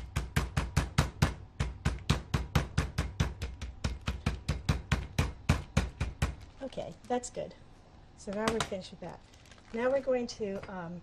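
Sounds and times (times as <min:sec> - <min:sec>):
meat mallet pounding meat: 0:00.0 - 0:06.5.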